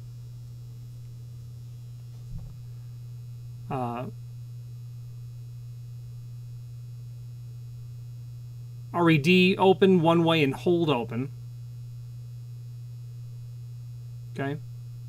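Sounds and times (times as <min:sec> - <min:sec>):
low mains hum: 0:00.0 - 0:15.0
light knock: 0:02.2 - 0:02.6.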